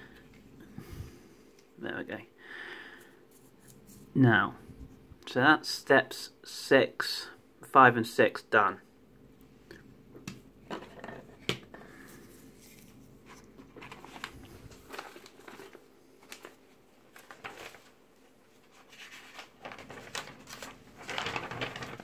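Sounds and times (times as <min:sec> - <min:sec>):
paper rustling: 0:12.0 - 0:22.0.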